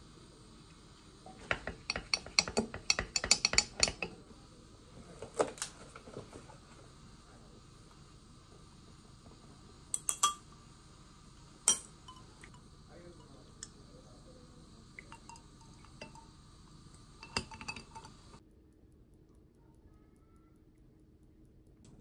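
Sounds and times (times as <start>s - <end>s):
glassware clinking: 1.4s - 4.2s, 10.0s - 10.5s, 11.7s - 13.8s, 15.0s - 16.4s, 17.0s - 18.4s
liquid pouring: 11.6s - 18.4s.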